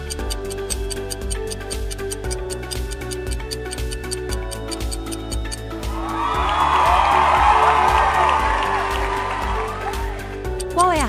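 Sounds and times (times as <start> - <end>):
timer ticking: 0.0 - 5.9, 10.4 - 11.0
upbeat background music: 0.0 - 11.0.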